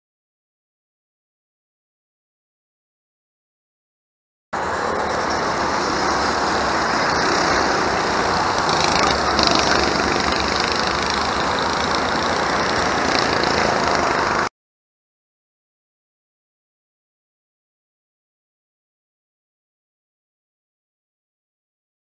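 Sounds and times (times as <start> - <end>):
go-kart engines running: 4.6 - 14.5.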